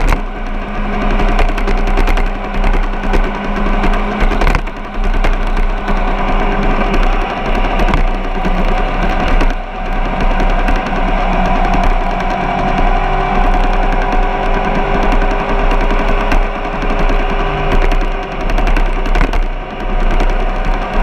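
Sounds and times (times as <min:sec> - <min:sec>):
mechanical rattle: 0:00.0 - 0:21.0
vehicle engine running: 0:00.0 - 0:21.0.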